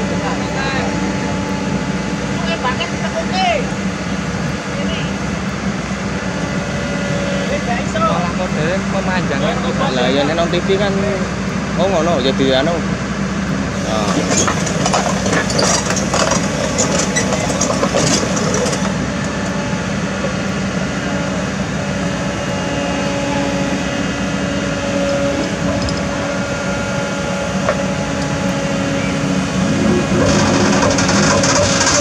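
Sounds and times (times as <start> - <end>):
excavator diesel engine running: 0.0 - 32.0
crackle: 14.1 - 19.6, 30.1 - 32.0.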